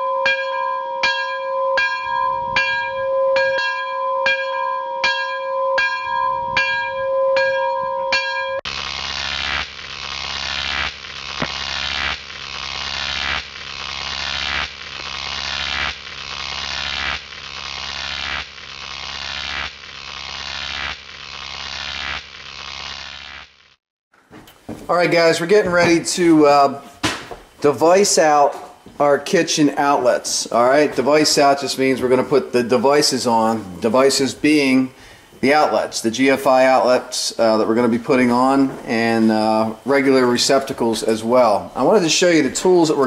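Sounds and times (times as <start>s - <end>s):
ringing beep: 0.0s - 8.6s.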